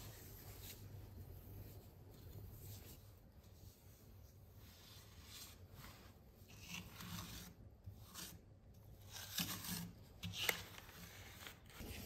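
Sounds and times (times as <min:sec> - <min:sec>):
trowel scraping plaster: 0:04.8 - 0:12.0.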